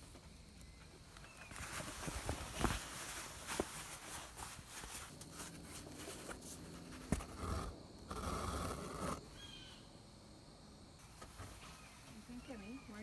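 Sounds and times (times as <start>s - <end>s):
needle and fabric clicks and rustling: 1.1s - 7.6s
thread scraping through canvas: 1.5s - 9.2s.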